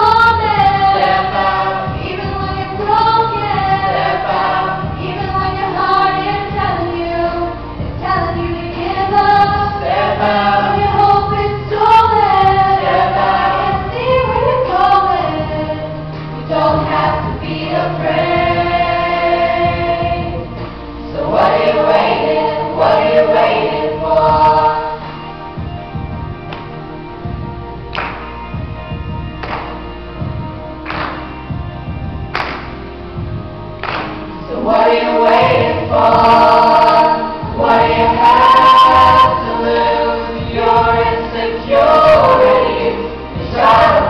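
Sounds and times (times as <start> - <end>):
children singing in harmony: 0.0 - 25.4, 34.4 - 44.0.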